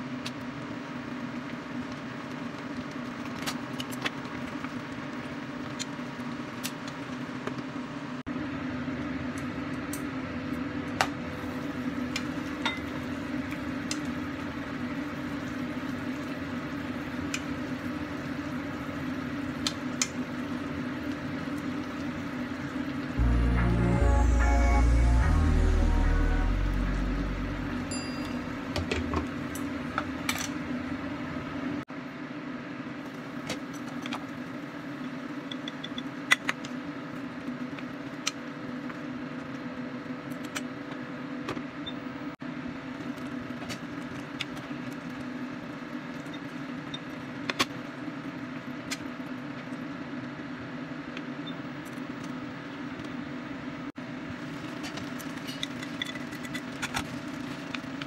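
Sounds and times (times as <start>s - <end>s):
induction hob humming: 4.3s - 31.9s.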